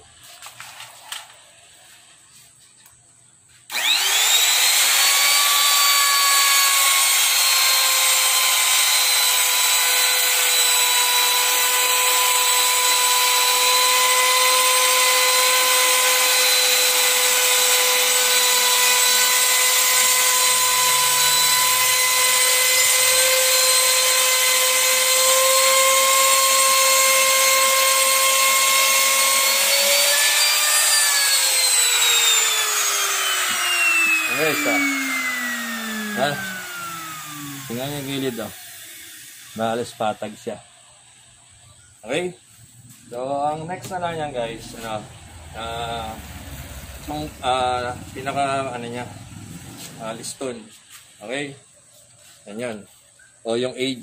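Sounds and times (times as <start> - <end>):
router motor winding down: 3.7 - 40.2, 44.2 - 50.5
electric router high whine: 3.7 - 40.6, 44.2 - 50.7.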